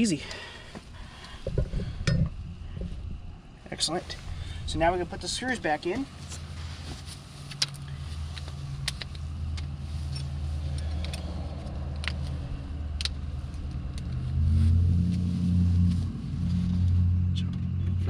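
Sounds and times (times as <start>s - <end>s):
low motor hum: 6.2s - 18.0s.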